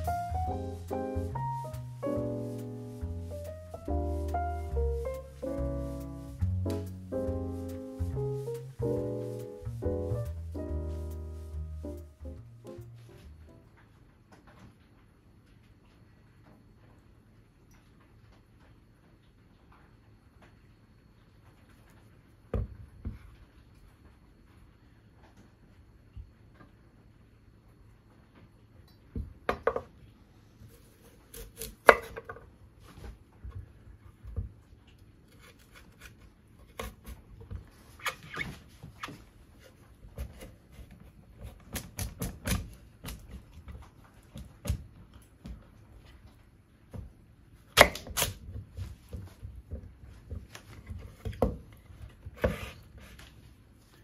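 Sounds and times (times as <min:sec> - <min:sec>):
knife cutting carrot: 0:30.7 - 0:32.3, 0:35.3 - 0:37.3, 0:47.8 - 0:48.5.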